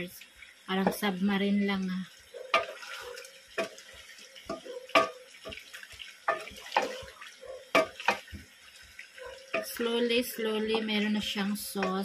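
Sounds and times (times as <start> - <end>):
sauce sizzling: 0.0 - 12.0
spoon knocking metal pot: 2.5 - 2.8, 3.6 - 3.8, 4.5 - 5.6, 6.3 - 7.0, 7.7 - 8.4, 9.5 - 9.8, 10.6 - 12.0.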